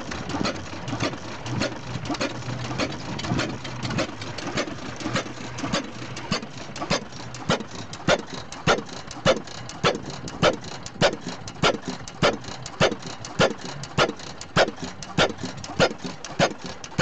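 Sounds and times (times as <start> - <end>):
stationary engine exhaust bangs: 0.0 - 17.0.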